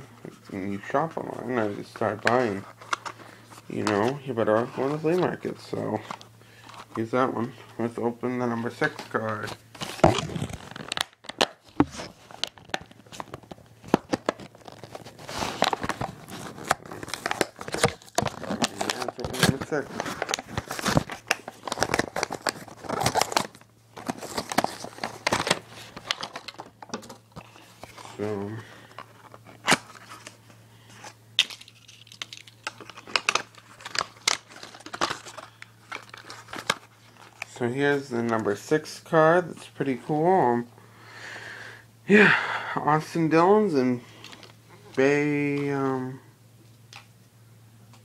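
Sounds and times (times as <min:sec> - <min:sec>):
packaging crinkling and tearing: 0:08.8 - 0:30.4, 0:31.0 - 0:37.6.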